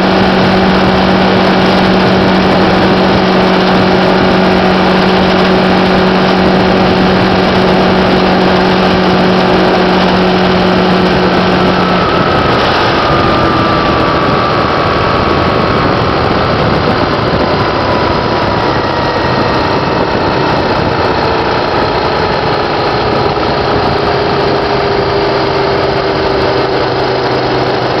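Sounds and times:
motorcycle engine drone: 0.0s - 28.0s
wind rushing: 0.0s - 28.0s.

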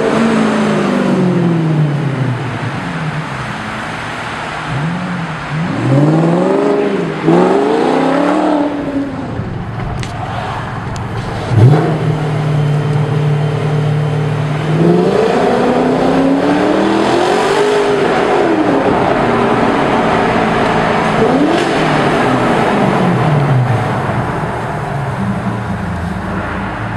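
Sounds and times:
car engine revving in tunnel: 0.0s - 26.9s.

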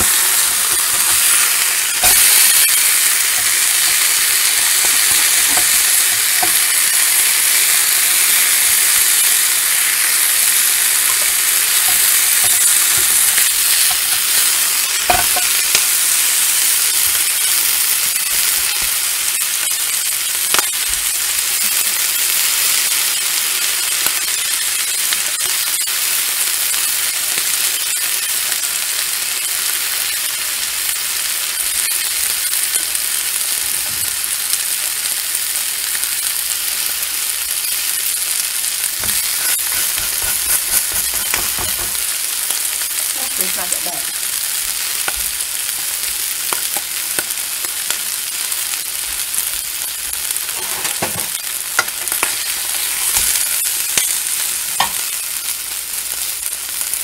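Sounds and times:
burger sizzling in a frying pan: 0.0s - 57.0s
food clicking and knocking in pan: 2.0s - 6.8s, 10.9s - 15.9s, 37.5s - 43.0s, 46.5s - 48.2s, 49.6s - 55.2s.

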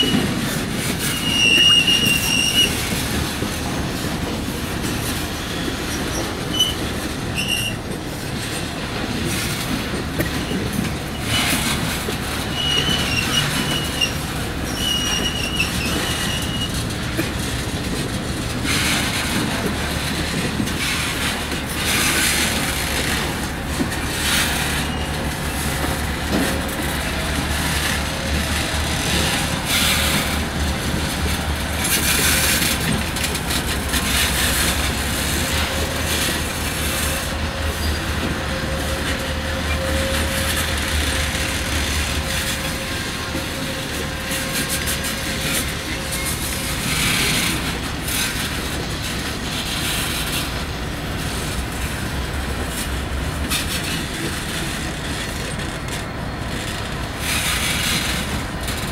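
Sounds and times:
diesel locomotive engine rumble: 0.0s - 58.9s
railcars rolling on rails: 0.0s - 58.9s.

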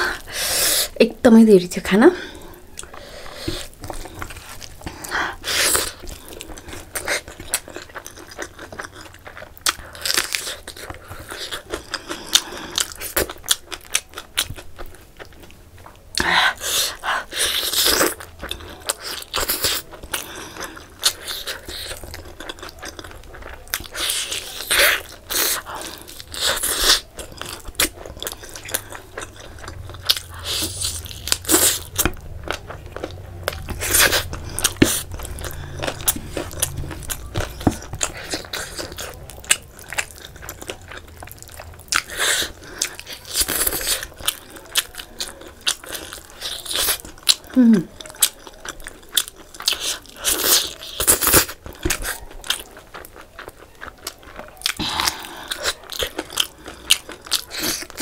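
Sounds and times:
chewing: 2.2s - 58.0s.

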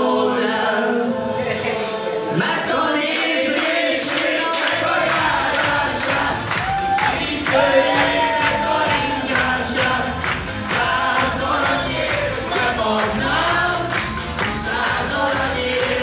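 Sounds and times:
group of men singing along: 0.0s - 16.0s
backing music with steady beat: 0.6s - 16.0s
group clapping: 3.0s - 16.0s
man singing into microphone: 10.7s - 16.0s.

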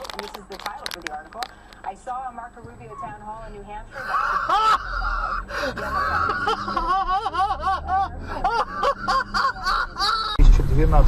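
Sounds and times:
person squealing: 4.0s - 10.4s
person gasping: 5.4s - 5.8s.

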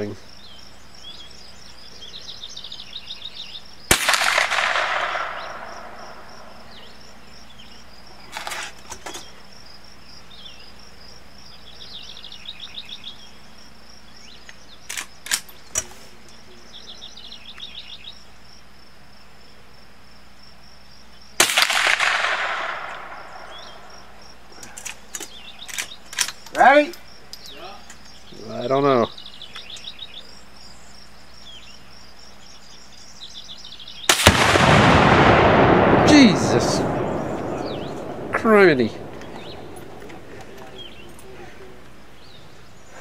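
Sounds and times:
birds chirping: 0.0s - 43.0s
insects trilling: 0.0s - 43.0s
rifle shots with echo: 3.9s - 6.8s, 21.4s - 24.1s, 34.1s - 40.5s.

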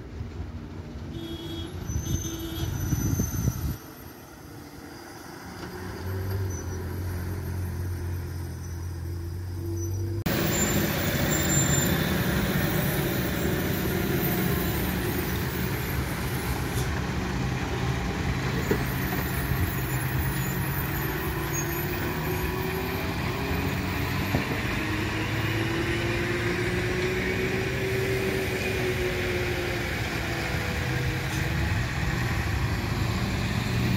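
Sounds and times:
lorry diesel engine droning: 0.1s - 33.9s.

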